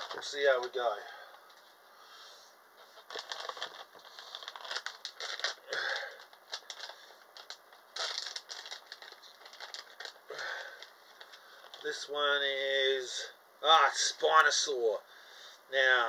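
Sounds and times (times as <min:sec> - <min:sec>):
packaging crinkling: 0:02.8 - 0:12.0.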